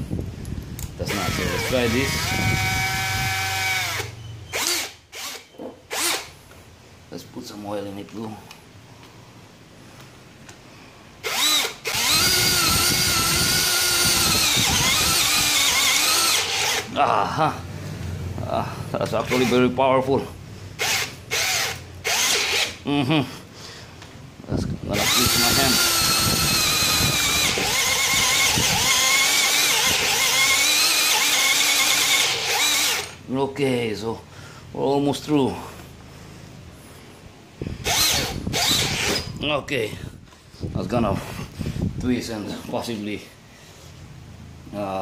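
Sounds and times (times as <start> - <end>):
drill cutting into steel: 1.1 - 6.3, 11.2 - 16.9, 20.8 - 22.8, 25.0 - 33.2, 37.8 - 39.3.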